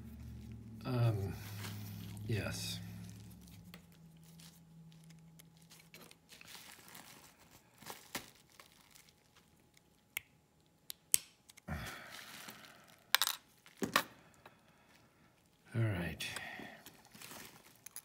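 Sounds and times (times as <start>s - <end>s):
rustling: 1.3s - 9.6s.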